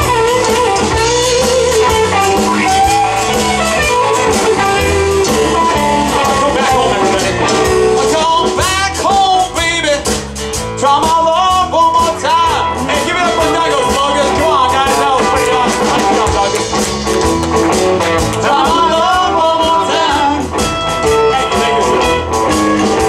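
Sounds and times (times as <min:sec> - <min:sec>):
bass guitar: 0:00.0 - 0:23.0
drums: 0:00.0 - 0:23.0
electric guitars: 0:00.0 - 0:23.0
man singing: 0:04.2 - 0:16.9, 0:18.2 - 0:22.6.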